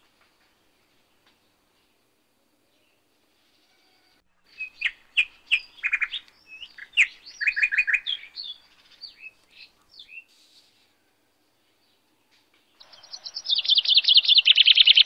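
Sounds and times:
birds chirping and whistling: 4.5s - 10.3s, 12.8s - 15.0s.

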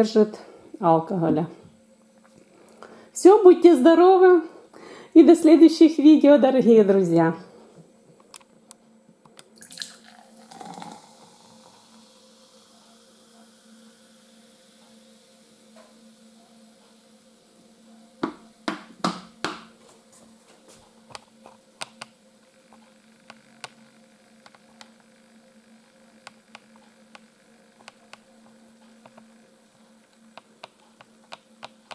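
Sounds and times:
steady low hum: 0.0s - 31.9s
drink fizzing in a glass: 9.6s - 12.2s.

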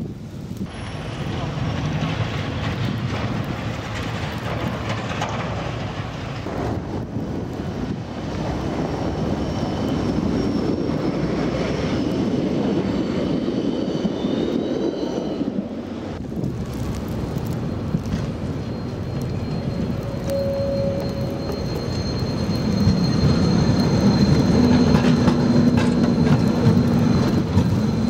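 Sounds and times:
tram passing rumble: 0.0s - 28.0s
faint high whine: 17.6s - 26.3s.

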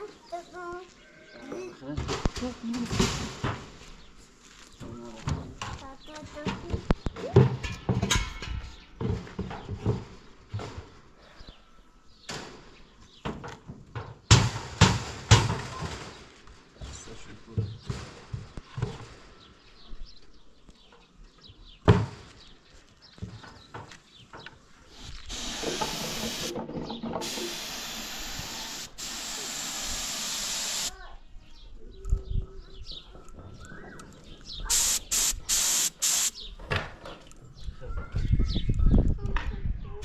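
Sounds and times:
wooden knocks and clunks: 5.2s - 11.0s, 25.6s - 27.7s
paint spray gun hissing: 25.0s - 26.6s, 27.2s - 30.9s, 34.7s - 36.4s.

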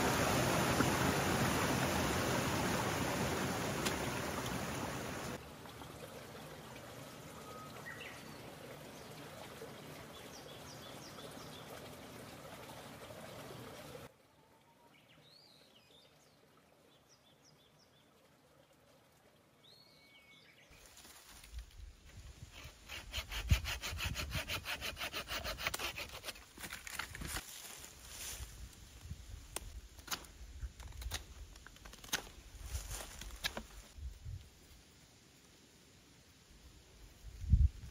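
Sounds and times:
saw cutting wood: 22.5s - 26.5s.

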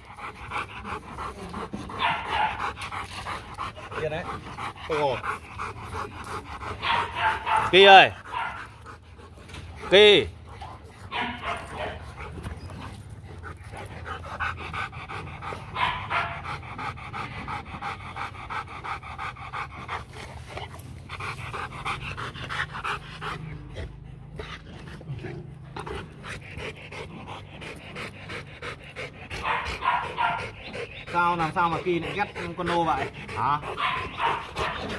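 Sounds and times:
dog panting: 0.0s - 34.9s.

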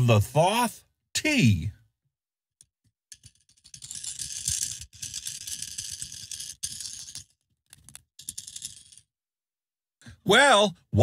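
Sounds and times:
vape pods rattling: 3.1s - 9.1s.

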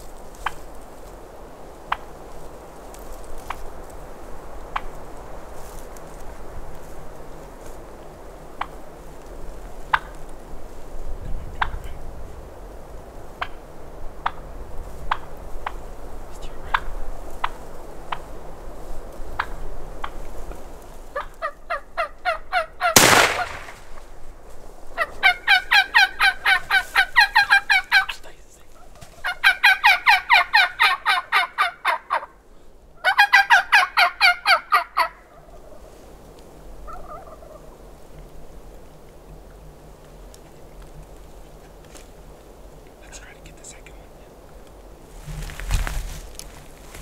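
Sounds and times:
wild turkeys calling: 8.4s - 9.3s, 9.9s - 10.3s, 21.0s - 24.1s, 25.0s - 32.4s, 33.0s - 36.0s, 36.8s - 38.3s
shotgun shot: 23.0s - 24.1s.

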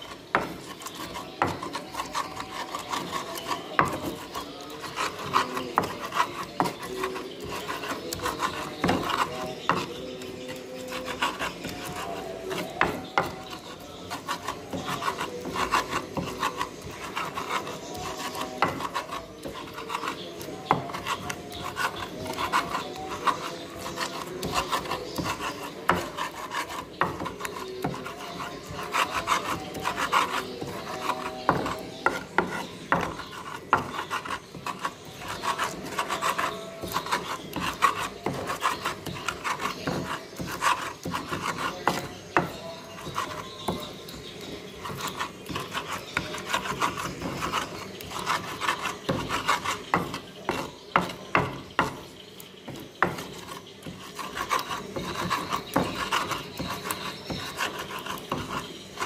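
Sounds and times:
stone pestle scraping clay mortar: 0.0s - 59.0s.

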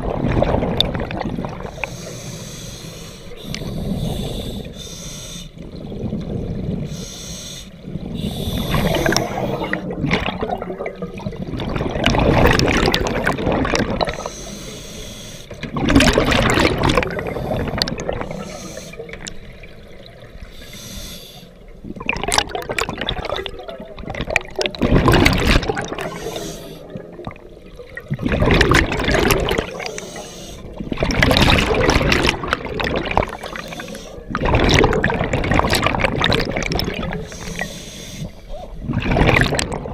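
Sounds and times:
bubbles gurgling underwater: 0.0s - 1.9s, 5.6s - 7.0s, 7.8s - 14.3s, 15.6s - 20.5s, 21.7s - 37.7s, 38.5s - 39.9s
regulator air hiss: 1.8s - 5.6s, 6.9s - 9.7s, 14.2s - 15.5s, 18.3s - 19.1s, 20.5s - 21.6s, 26.1s - 26.9s, 30.0s - 30.7s, 37.3s - 38.5s.

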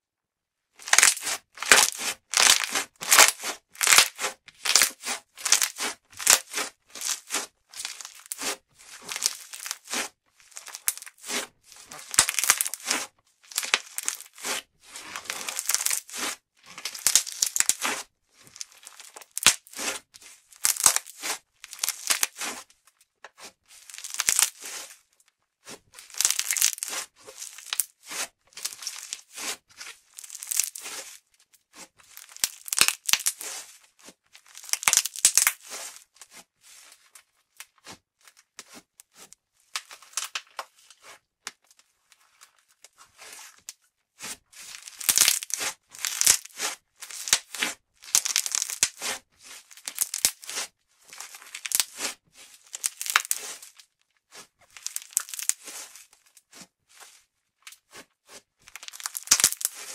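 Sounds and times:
slime crackly squishes: 0.8s - 22.7s, 23.3s - 25.0s, 25.6s - 33.7s, 34.4s - 37.9s, 44.6s - 53.7s, 54.3s - 56.0s, 58.7s - 59.9s.

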